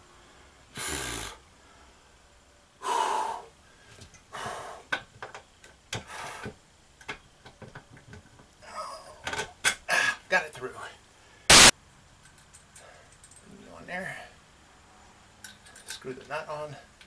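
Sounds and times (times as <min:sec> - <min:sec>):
man breathing heavily: 0:02.8 - 0:05.0, 0:06.0 - 0:06.6
hands clicking on metal hardware: 0:12.2 - 0:13.5.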